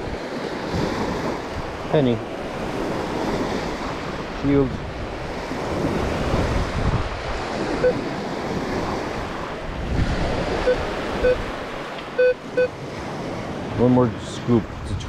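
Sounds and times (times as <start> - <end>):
beach surf: 0.0 - 15.0
wind buffeting microphone: 0.0 - 15.0
metal detector beeps: 7.8 - 8.0, 10.6 - 11.4, 12.2 - 12.7.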